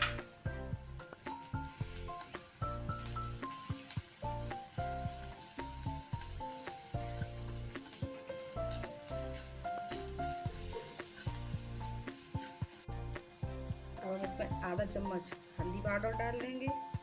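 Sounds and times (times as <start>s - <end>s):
background music with bass: 0.0s - 3.5s
onions sizzling in a pan: 0.0s - 17.0s
ladle clicking on pan: 6.0s - 10.2s
ladle scraping a pan: 6.9s - 10.1s, 10.8s - 11.6s.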